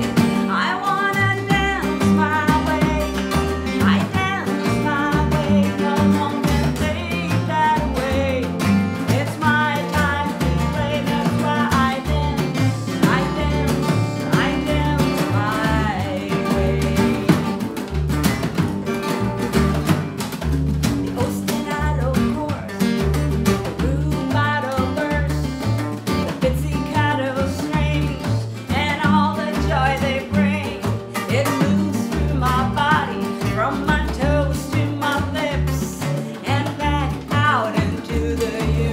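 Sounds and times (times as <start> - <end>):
live band playing: 0.0 - 0.6, 1.4 - 9.1, 9.9 - 24.3
woman singing: 0.0 - 18.0, 21.0 - 38.9.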